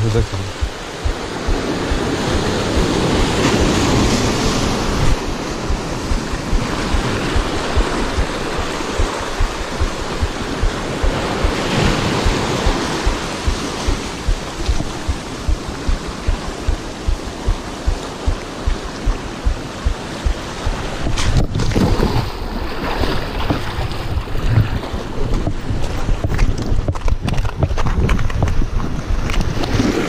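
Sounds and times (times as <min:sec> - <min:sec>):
surf washing through rocks: 0:00.0 - 0:26.1
low thumps on microphone: 0:00.4 - 0:22.0.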